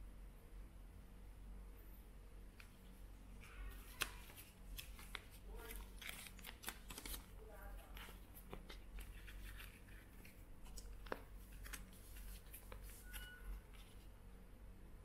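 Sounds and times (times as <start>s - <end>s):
paper crinkling and rustling: 3.4s - 14.1s.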